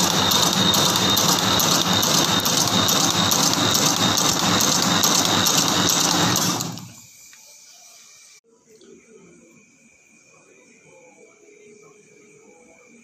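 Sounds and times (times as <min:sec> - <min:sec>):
machine mechanical clatter: 0:00.0 - 0:07.0.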